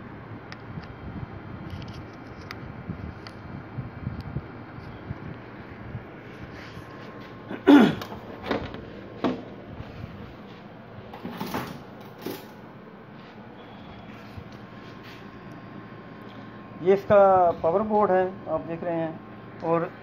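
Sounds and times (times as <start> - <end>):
knocks and bumps of handling: 8.0 - 9.5.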